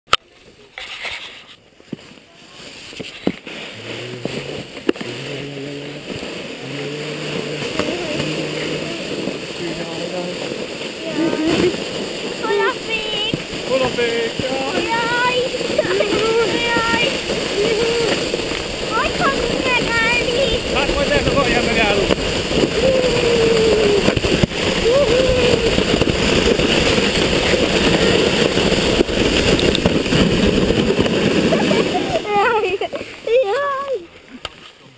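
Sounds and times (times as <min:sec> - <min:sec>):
wind: 0:00.0 - 0:34.9
sled runners on snow: 0:00.3 - 0:34.9
low drone: 0:03.7 - 0:11.8, 0:13.5 - 0:32.2.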